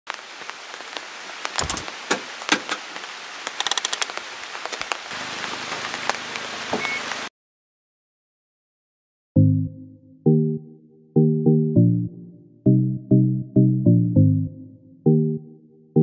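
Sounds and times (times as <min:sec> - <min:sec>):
rain falling: 0:00.1 - 0:07.3.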